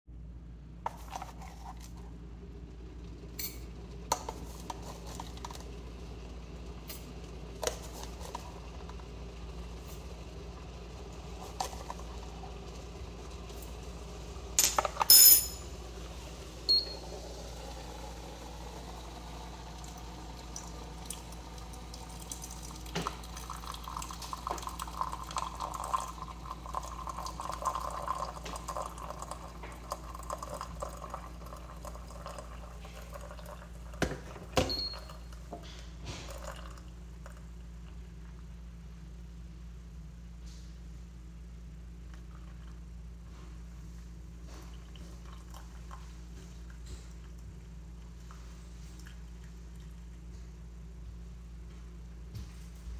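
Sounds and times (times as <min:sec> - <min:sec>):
hot water pouring: 0:04.2 - 0:14.6, 0:15.7 - 0:35.2, 0:36.2 - 0:37.6
glass clinks: 0:14.6 - 0:15.7
tea trickling into glass pitcher: 0:18.4 - 0:35.5, 0:36.2 - 0:38.0, 0:44.6 - 0:46.2.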